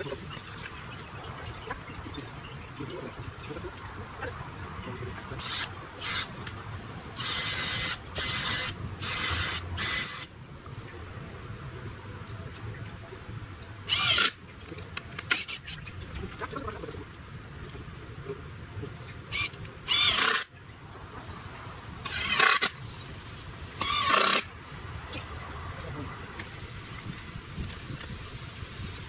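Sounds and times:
power drill driving screws: 5.4s - 6.3s, 7.2s - 10.3s, 13.9s - 14.3s, 19.3s - 20.5s, 22.0s - 22.7s, 23.8s - 24.5s.

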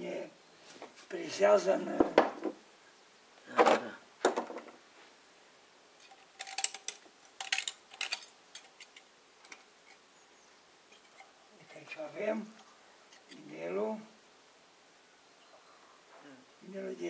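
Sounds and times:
metal parts clinking: 6.0s - 9.6s.

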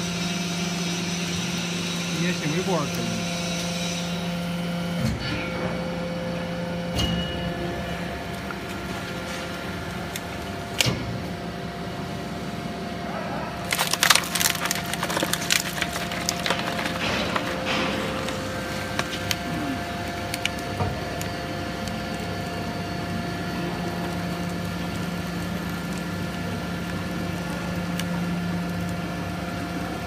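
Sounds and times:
hydraulic pump hum: 0.0s - 30.0s
cans crunching under press: 13.6s - 22.7s.

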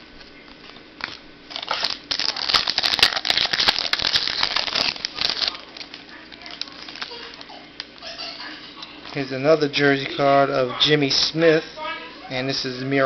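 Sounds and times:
trading cards crinkling: 0.3s - 8.0s.

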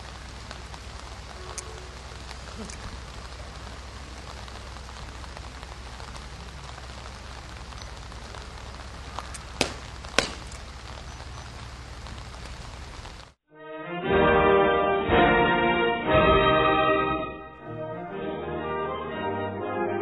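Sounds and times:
background hiss: 0.0s - 13.4s
sharp knocks: 9.6s - 10.6s.

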